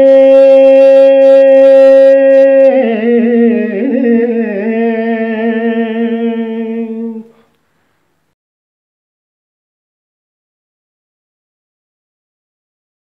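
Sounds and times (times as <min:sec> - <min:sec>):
person singing a held note: 0:00.0 - 0:07.6.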